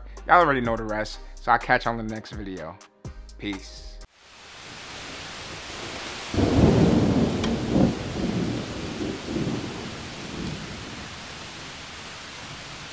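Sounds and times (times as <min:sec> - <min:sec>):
rain hissing: 0:04.1 - 0:12.9
thunder rumbling: 0:05.5 - 0:12.9.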